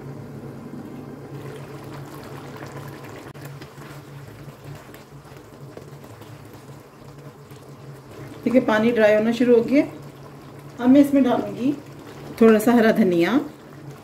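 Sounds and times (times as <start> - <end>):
steady low hum: 0.0 - 14.0
sauce bubbling and crackling: 0.7 - 14.0
spatula stirring: 3.2 - 14.0.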